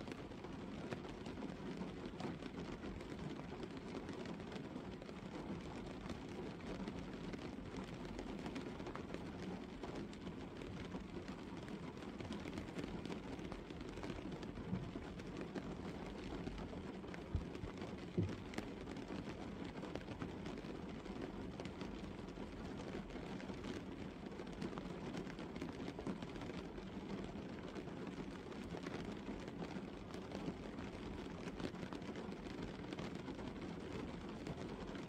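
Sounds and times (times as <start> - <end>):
light rain on car roof: 0.0 - 35.0
louder taps on car: 18.2 - 18.4.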